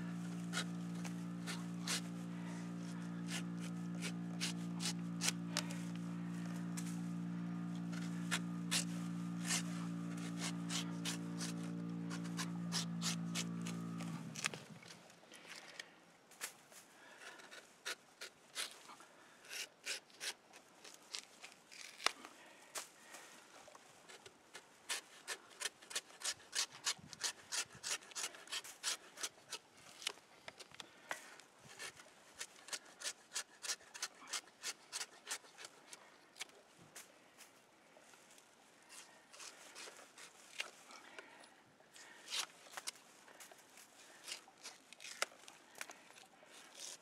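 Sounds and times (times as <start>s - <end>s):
steady low hum: 0.0s - 15.6s
knife scraping bark off log: 0.1s - 15.0s, 17.3s - 18.9s, 19.5s - 22.2s, 24.1s - 30.2s, 31.7s - 36.6s, 38.9s - 40.8s, 42.0s - 43.0s, 44.1s - 46.0s, 46.6s - 47.0s.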